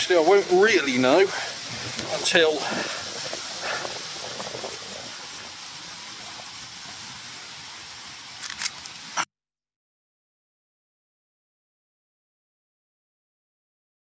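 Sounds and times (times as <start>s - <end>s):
rain hissing: 0.0s - 9.3s.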